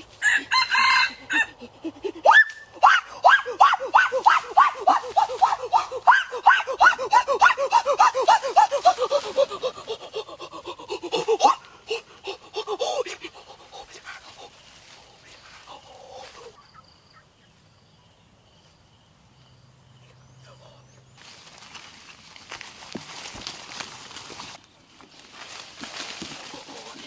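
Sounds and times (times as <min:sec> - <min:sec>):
rapid panting: 0:04.9 - 0:15.1.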